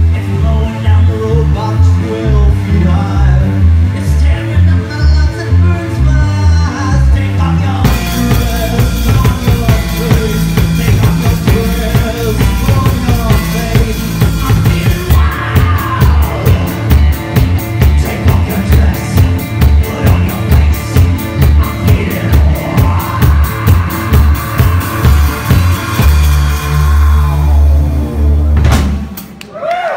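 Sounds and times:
person singing: 0.0 - 28.4
amplified guitar: 0.0 - 29.4
drum kit pounding: 7.8 - 29.4.

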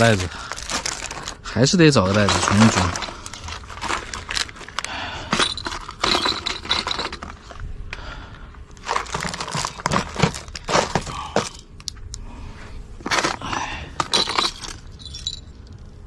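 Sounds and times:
tackle boxes clinking and clattering: 0.5 - 7.5, 8.8 - 11.7, 13.0 - 15.5.

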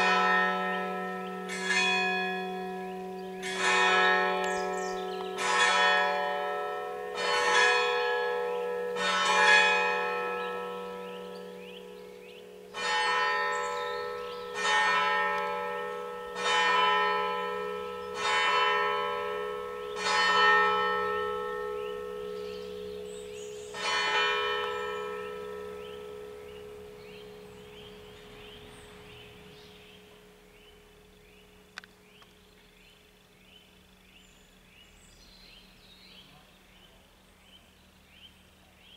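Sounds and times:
church bell tolling: 0.0 - 31.0.

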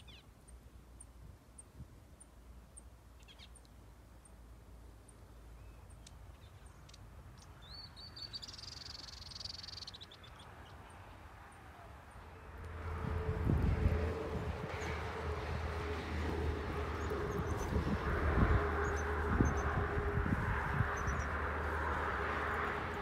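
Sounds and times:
faint high bird chirps: 5.6 - 10.5
low engine rumble: 11.6 - 23.0.

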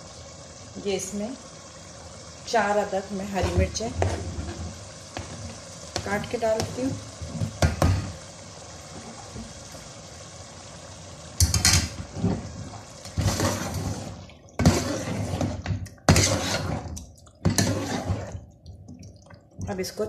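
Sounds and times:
metal spoon scraping a pot: 13.2 - 18.4.

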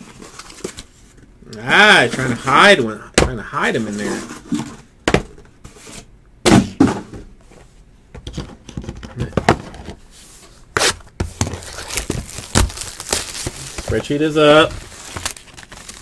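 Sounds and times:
cardboard boxes knocking on table: 6.5 - 7.3
cardboard handling noise: 8.3 - 16.0.

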